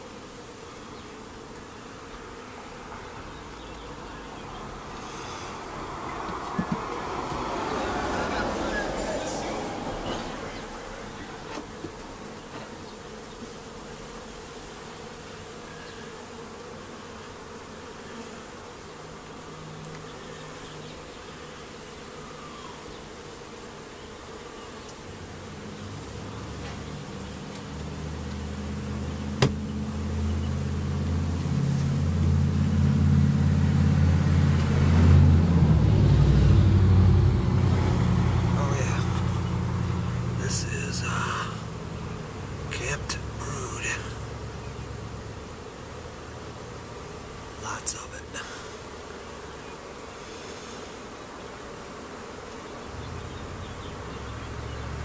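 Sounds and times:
honey bees buzzing: 0:00.0 - 0:55.0
sharp knock: 0:29.4 - 0:29.6.

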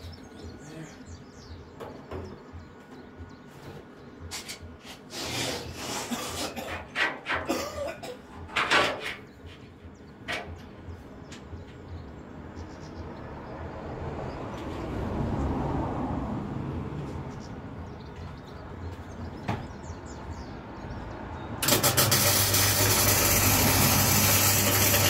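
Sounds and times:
welder crackling bursts: 0:21.6 - 0:25.0.

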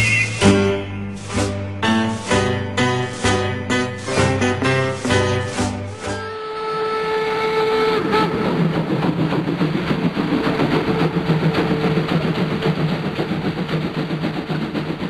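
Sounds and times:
wheels clicking on rails: 0:00.0 - 0:06.4, 0:07.5 - 0:15.0.

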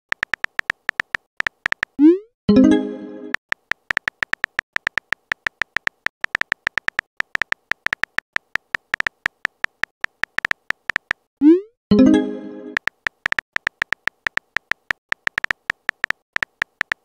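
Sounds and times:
phone keypress ticks: 0:00.1 - 0:02.0, 0:03.4 - 0:11.3, 0:12.8 - 0:17.0.

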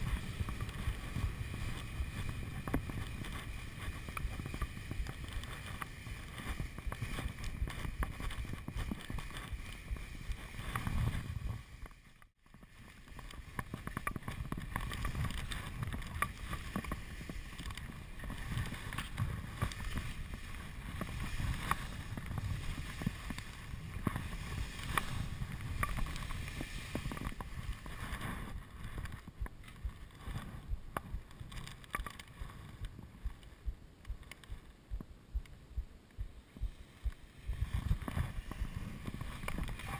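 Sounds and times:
skis hissing over snow: 0:00.0 - 0:11.9, 0:12.7 - 0:28.9, 0:36.7 - 0:39.9
wind rumbling on microphone: 0:00.0 - 0:39.9.

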